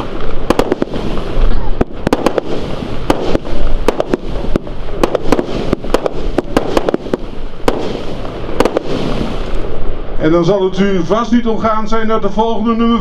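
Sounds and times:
fireworks firing rapid volley: 0.0s - 9.9s
small shells bursting: 1.8s - 9.6s.

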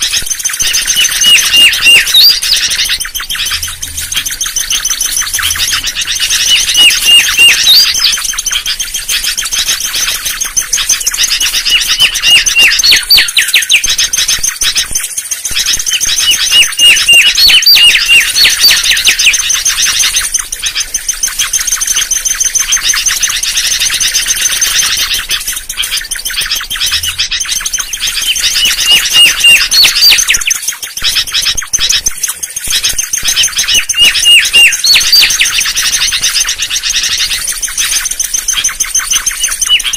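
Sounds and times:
bird whistling song: 0.0s - 39.9s
high chirping: 0.0s - 39.9s.

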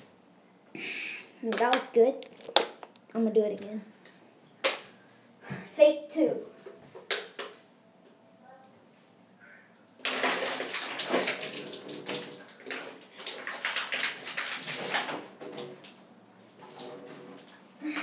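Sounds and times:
water splashing on tiled floor: 10.0s - 15.9s, 16.6s - 17.5s.

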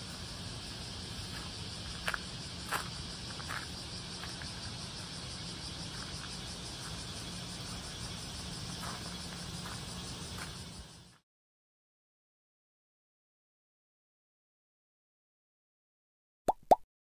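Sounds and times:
high insect drone: 0.0s - 11.2s.

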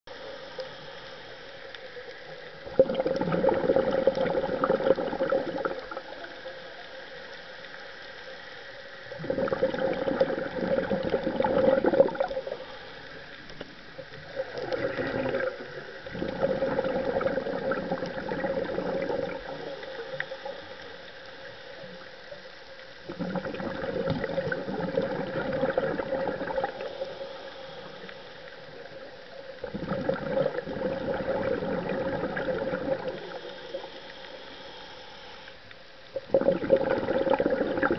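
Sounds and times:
exhaled bubbles underwater: 0.1s - 34.8s, 36.0s - 37.9s.

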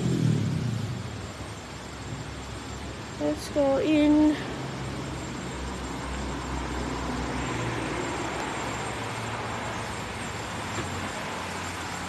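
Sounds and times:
low hum and hiss: 0.0s - 12.0s.

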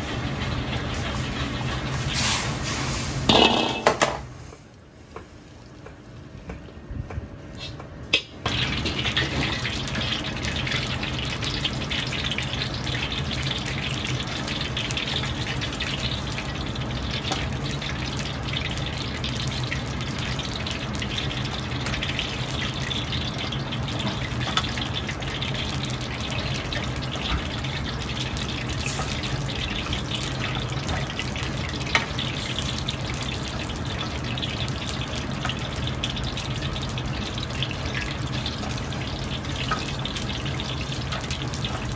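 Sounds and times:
slices sizzling in oil: 8.5s - 41.9s.

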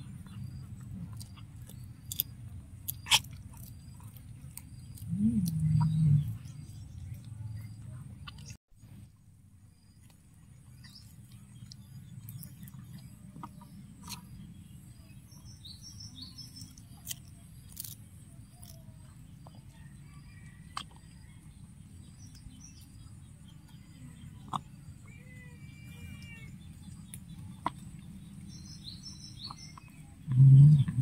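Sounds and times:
cats chewing: 0.0s - 5.9s
birds chirping: 0.0s - 31.0s
low steady hum: 0.0s - 31.0s.

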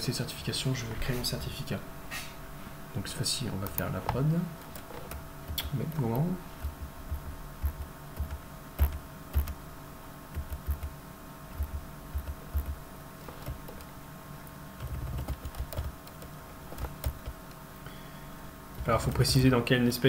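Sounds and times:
computer keyboard typing: 3.6s - 9.6s, 10.3s - 13.9s, 14.8s - 17.5s.

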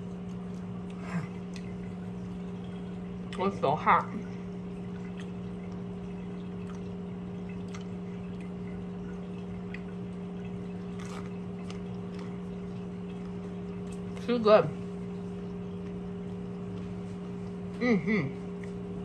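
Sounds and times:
person chewing: 0.0s - 1.9s, 10.7s - 14.2s
low hum with higher tone: 0.0s - 19.0s.

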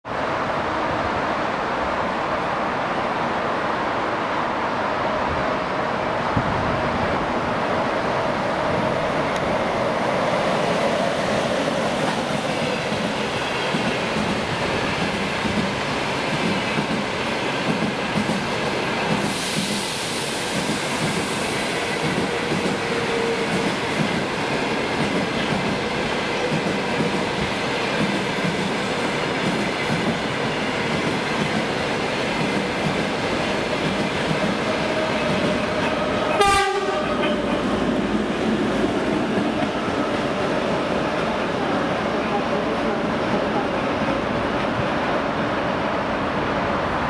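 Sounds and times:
locomotive horn blast: 36.3s - 37.6s.

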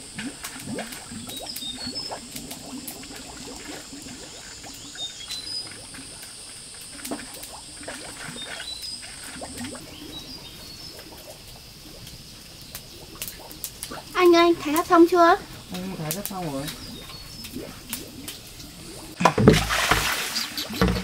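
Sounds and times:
high insect drone: 0.0s - 21.0s
bird chirps: 4.7s - 5.8s, 14.1s - 18.5s.

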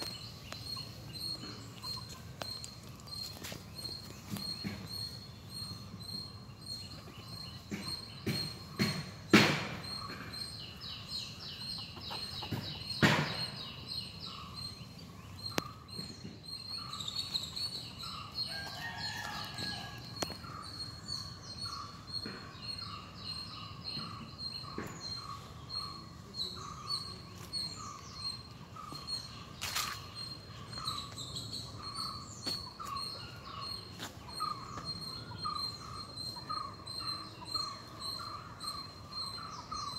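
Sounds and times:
birds calling and chirping: 0.0s - 39.9s
sharp knocks: 7.7s - 10.5s, 12.5s - 13.7s.

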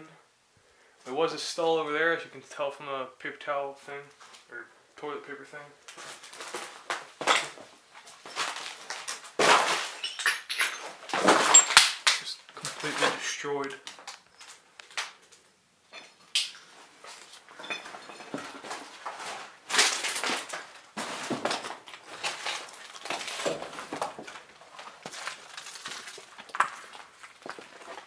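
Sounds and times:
footsteps crunching on debris: 5.8s - 15.4s, 16.2s - 28.0s.

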